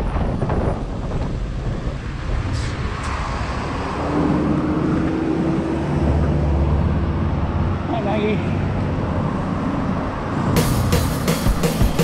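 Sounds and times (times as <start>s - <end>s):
wind over microphone: 0.0s - 6.2s.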